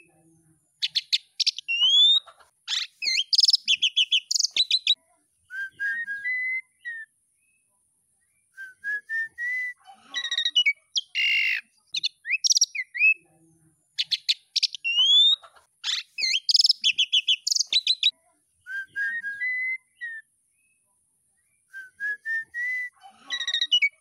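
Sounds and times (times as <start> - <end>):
starling singing: 0.8 - 7.0, 10.2 - 13.2, 14.0 - 18.1, 22.4 - 24.0.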